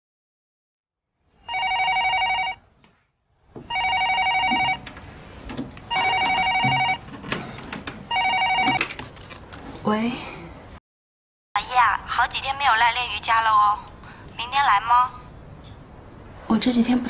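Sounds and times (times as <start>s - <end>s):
telephone ringing: 1.5s - 2.7s, 3.7s - 4.9s, 5.9s - 7.1s, 8.1s - 8.9s.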